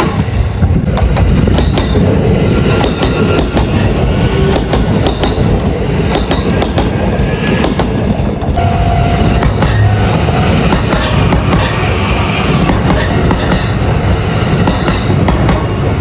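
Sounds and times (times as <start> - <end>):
low train rumble: 0.0 - 16.0
train wheels clickety-clack: 0.0 - 16.0
faint high tone: 8.6 - 10.4.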